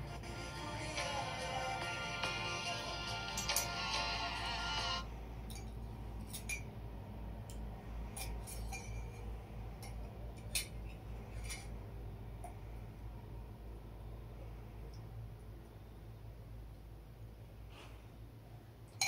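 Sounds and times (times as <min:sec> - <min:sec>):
background music: 0:00.0 - 0:05.1.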